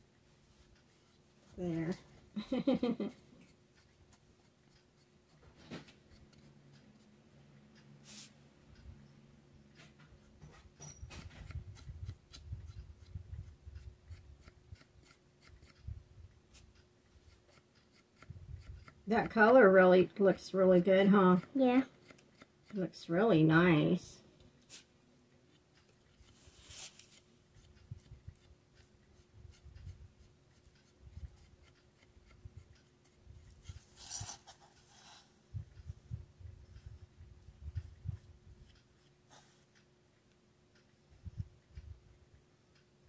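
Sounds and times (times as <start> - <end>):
paintbrush scratching on wood: 8.0 - 8.3, 26.1 - 35.4
paintbrush strokes on wood: 8.0 - 8.4, 26.2 - 28.1, 33.4 - 36.0
brush scrubbing: 26.2 - 28.1.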